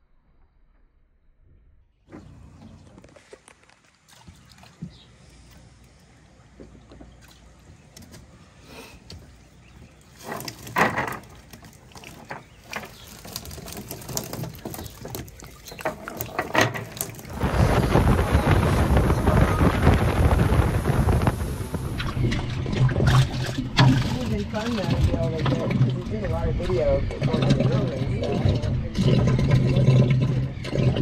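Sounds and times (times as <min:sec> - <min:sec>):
cast net rustling and knocking: 0:10.2 - 0:17.4
wind buffeting microphone: 0:14.2 - 0:31.0.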